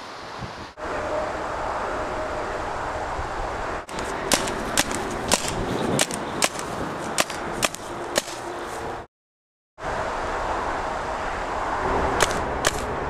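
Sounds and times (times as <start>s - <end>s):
wind noise: 0.0s - 9.0s
paintball marker firing: 3.9s - 8.5s, 12.2s - 12.9s.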